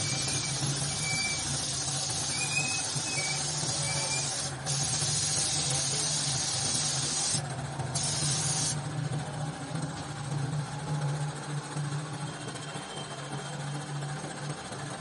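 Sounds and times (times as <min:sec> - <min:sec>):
air spray gun hissing: 0:00.0 - 0:07.4, 0:08.0 - 0:08.8.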